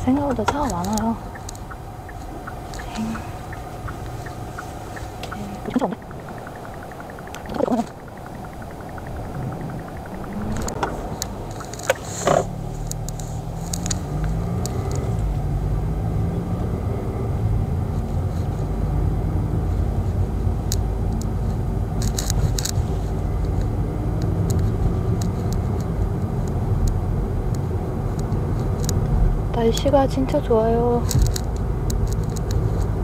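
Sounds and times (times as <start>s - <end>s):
car engine and road rumble: 0.0s - 33.0s
sharp clicks: 0.3s - 15.1s.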